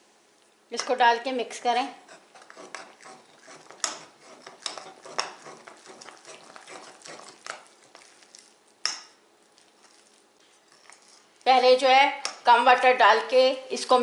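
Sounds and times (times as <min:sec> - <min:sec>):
spoon scraping in bowl: 0:02.0 - 0:11.8.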